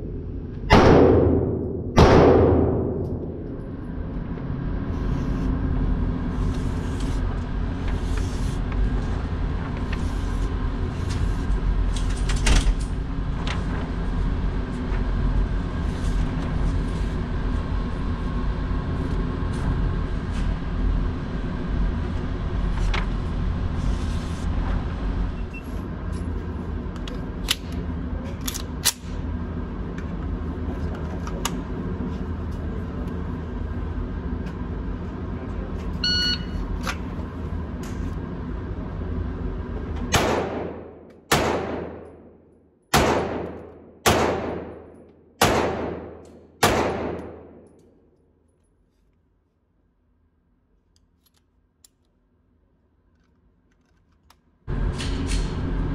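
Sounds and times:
steady low hum: 0.0s - 55.9s
pistol shots echoing indoors: 0.7s - 3.5s, 40.1s - 47.8s
short beep: 36.0s - 36.6s.

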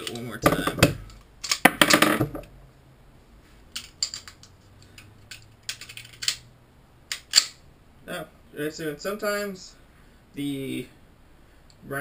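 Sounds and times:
pistol metal clicks and clacks: 0.0s - 2.0s, 3.7s - 6.4s, 7.1s - 7.6s.

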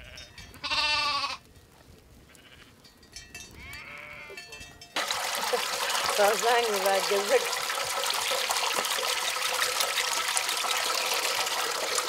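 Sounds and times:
livestock bleating: 0.0s - 1.4s, 2.3s - 2.8s, 3.6s - 4.4s.

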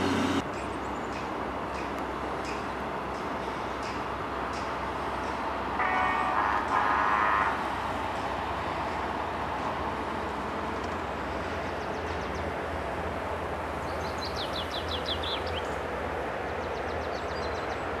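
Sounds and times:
rushing outdoor background noise: 0.0s - 18.0s
songbird chirping: 13.8s - 18.0s.

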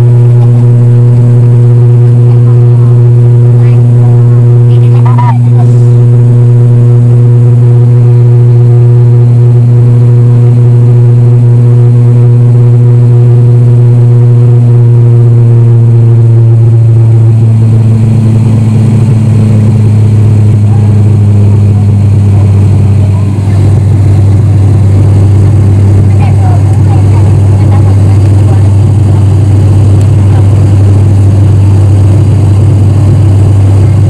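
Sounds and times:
turboprop engine drone: 0.0s - 34.0s.

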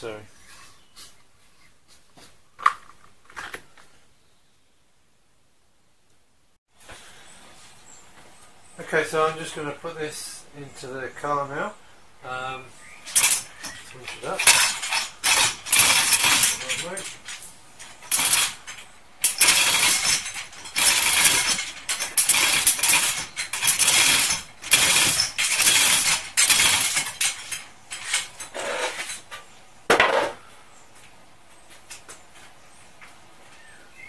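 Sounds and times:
hoist chain rattling: 13.0s - 29.3s.

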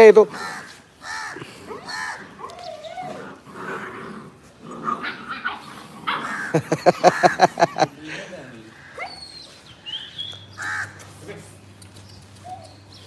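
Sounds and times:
puppies yapping: 0.4s - 7.8s, 8.7s - 11.1s.

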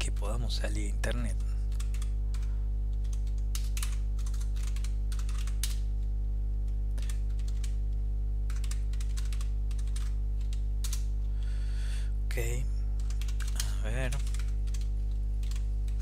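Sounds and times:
low electrical hum: 0.0s - 16.0s
computer keyboard typing: 1.2s - 6.1s, 6.7s - 11.2s, 13.0s - 16.0s.

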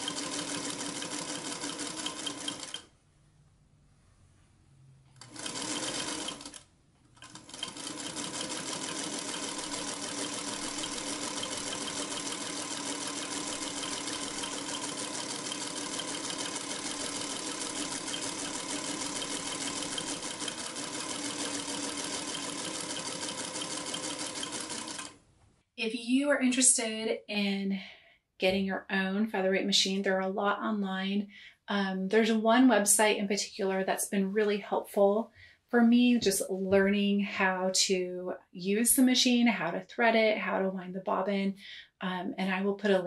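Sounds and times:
sewing machine stitching: 0.0s - 2.9s, 5.1s - 25.2s.

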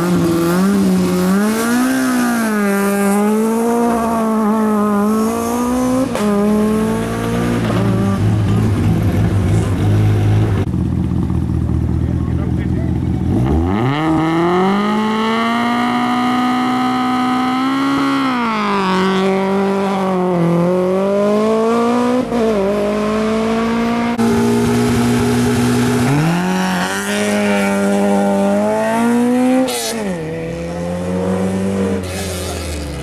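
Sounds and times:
rally car accelerating through gears: 0.0s - 10.7s, 13.2s - 33.0s.

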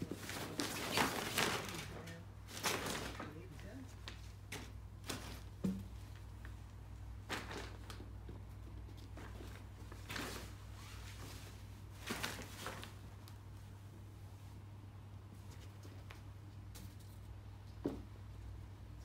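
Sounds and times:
fabric rustling and scuffing: 0.0s - 14.6s
low steady hum: 0.0s - 19.0s.

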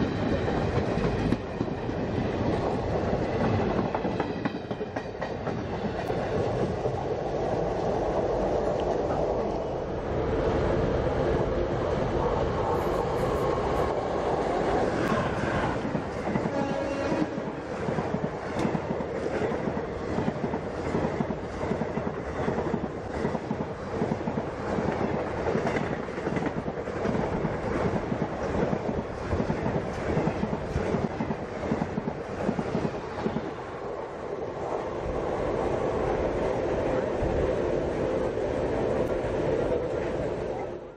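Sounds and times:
train wheels clattering over rail joints: 15.0s - 33.5s.

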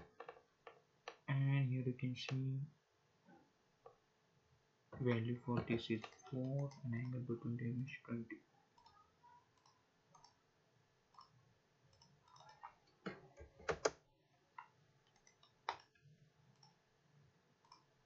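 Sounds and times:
computer mouse clicks: 9.6s - 10.4s, 11.1s - 14.0s, 14.6s - 16.0s, 17.6s - 17.9s.

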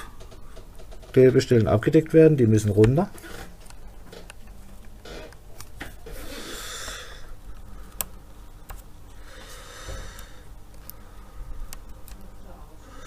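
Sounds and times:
screwdrivers clicking on plastic: 9.9s - 11.0s, 11.6s - 12.4s.

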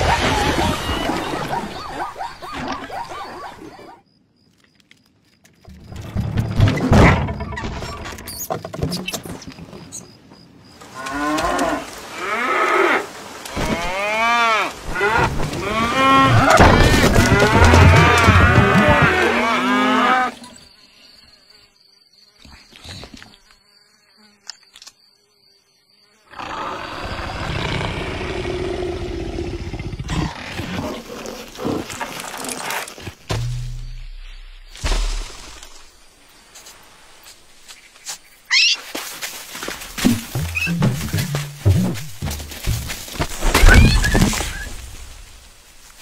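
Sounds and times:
cows mooing: 11.0s - 20.4s.

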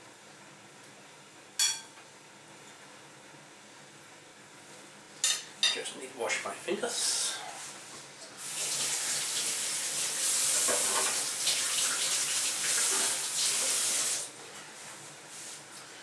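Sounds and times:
water tap running: 8.4s - 14.3s.

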